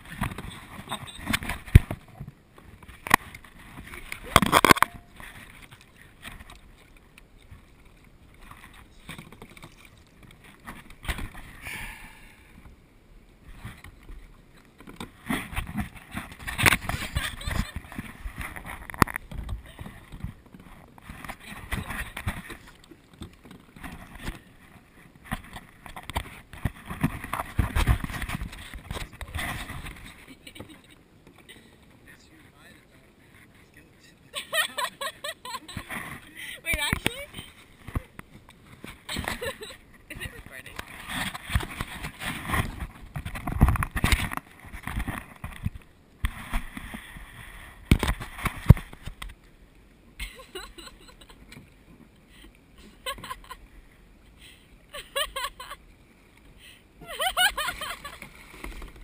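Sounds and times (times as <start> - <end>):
water sloshing and splashing: 0.0 - 11.6, 13.4 - 32.3, 33.1 - 49.4, 55.0 - 59.0.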